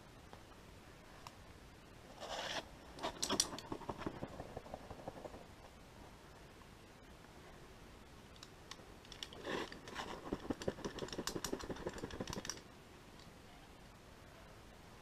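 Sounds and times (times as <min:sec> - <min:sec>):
climbing gear clicking: 0:08.4 - 0:12.6.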